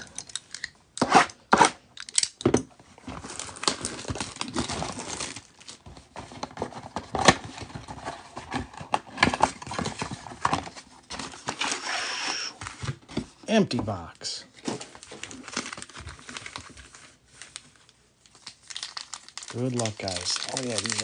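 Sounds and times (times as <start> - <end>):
cardboard rustling: 3.0 - 17.8
plastic wrap crinkling: 3.2 - 8.1, 14.6 - 21.0.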